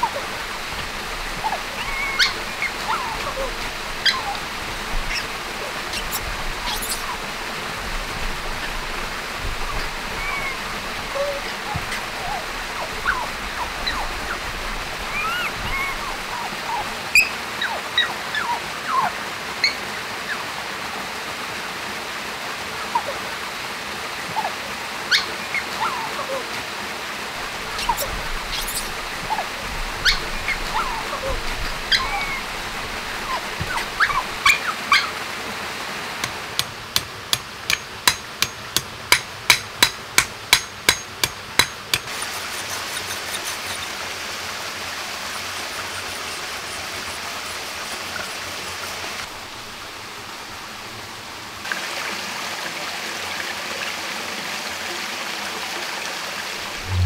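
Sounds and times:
stream water running: 0.0 - 57.0
chirping animal calls: 1.3 - 7.3, 9.7 - 19.8, 27.7 - 35.2.

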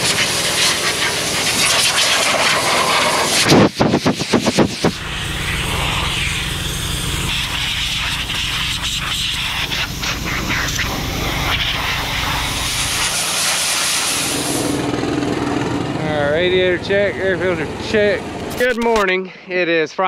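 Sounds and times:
compressed air hissing from blow gun: 0.0 - 14.8
low engine drone: 0.0 - 19.0.

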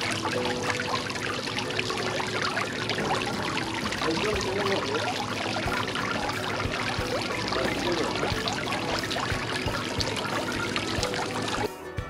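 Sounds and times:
fountain water splashing: 0.0 - 11.7.

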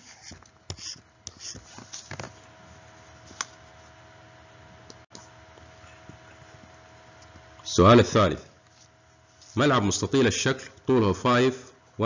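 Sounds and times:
pen scratching on tablet: 0.0 - 1.8
faint hum: 0.0 - 12.0.

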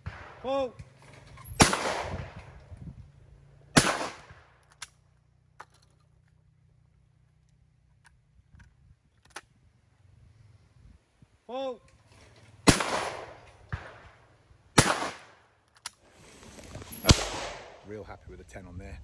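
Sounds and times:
shotgun shots: 0.0 - 0.5, 1.5 - 2.6, 3.7 - 4.6, 12.6 - 15.4, 17.0 - 17.8.

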